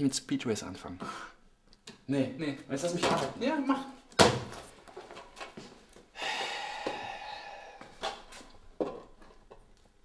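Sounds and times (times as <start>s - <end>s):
long breathy exhale: 6.2s - 8.2s.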